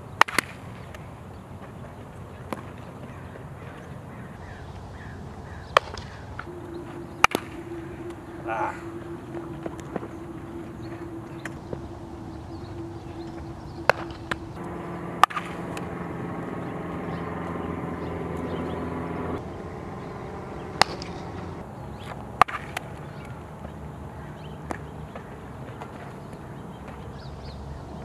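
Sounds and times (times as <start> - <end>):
steady multi-tone hum: 0.0 - 28.0
bat striking baseballs: 0.1 - 3.9, 4.5 - 8.2, 12.5 - 18.0, 20.7 - 23.8
balls smacking into gloves: 0.2 - 1.0, 5.7 - 6.2, 22.4 - 22.9.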